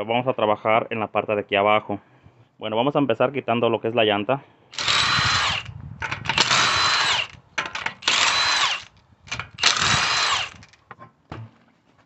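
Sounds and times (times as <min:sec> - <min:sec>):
impact wrench spinning lug nuts: 0:04.8 - 0:10.8.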